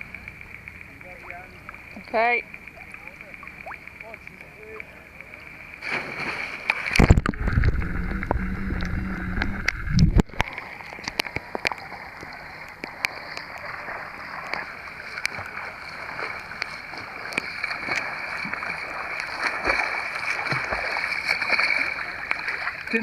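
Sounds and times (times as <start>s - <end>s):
water splashing and lapping: 0.0s - 23.0s
swimmer splashing: 1.0s - 23.0s
loud muffled rumble: 7.0s - 10.3s.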